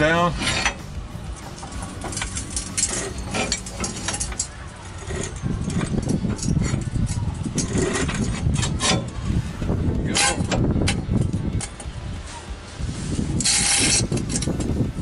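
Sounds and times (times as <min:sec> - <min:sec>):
low rumble: 0:00.0 - 0:08.5
metal bolts clinking and scraping: 0:00.4 - 0:09.2.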